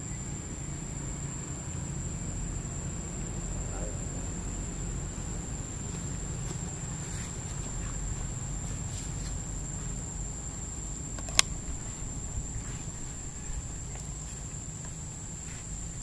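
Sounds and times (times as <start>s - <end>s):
steady low rumble: 0.0s - 16.0s
sharp click: 11.2s - 11.6s.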